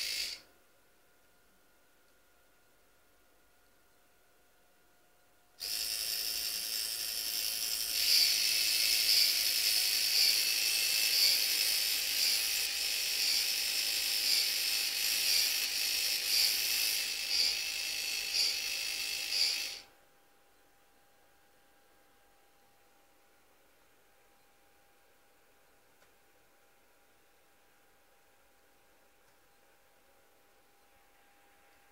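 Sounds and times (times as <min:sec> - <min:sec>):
small electric motor whining: 0:00.0 - 0:00.4, 0:05.6 - 0:19.9.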